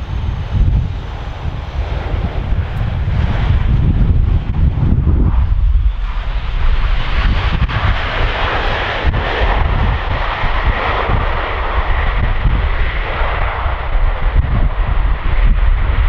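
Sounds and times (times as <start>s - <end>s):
jet engines roaring: 0.0s - 16.0s.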